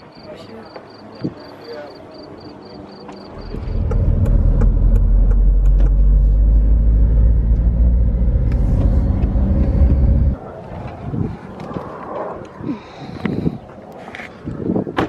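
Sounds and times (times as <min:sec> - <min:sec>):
car interior road and wind noise: 0:03.3 - 0:15.0.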